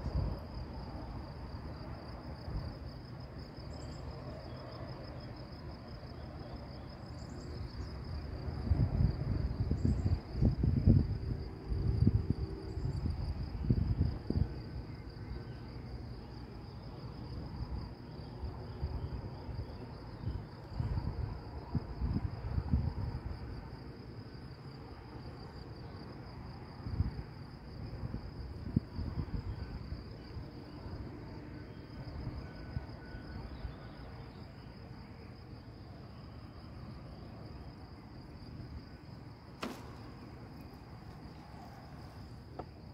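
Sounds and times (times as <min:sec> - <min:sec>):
insects chirring: 0:00.0 - 0:42.9
wind buffeting microphone: 0:07.8 - 0:14.8, 0:18.8 - 0:23.7, 0:26.8 - 0:30.6.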